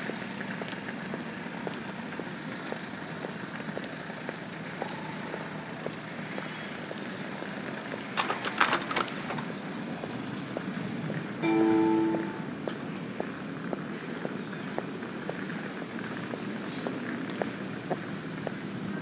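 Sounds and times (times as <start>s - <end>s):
footsteps ticking: 0.0s - 8.1s
brief pitched tone: 4.8s - 5.8s, 11.4s - 12.6s
steady background hiss: 11.2s - 14.0s.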